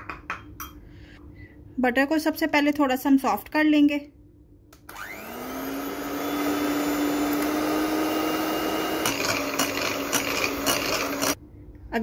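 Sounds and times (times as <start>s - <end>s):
electric hand beater motor: 4.9s - 11.4s.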